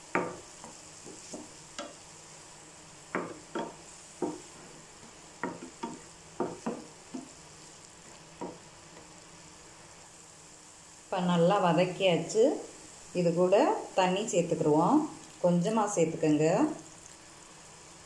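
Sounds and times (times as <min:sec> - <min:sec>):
faint sizzle of frying: 0:00.0 - 0:18.0
spatula scraping frying pan: 0:00.1 - 0:02.2.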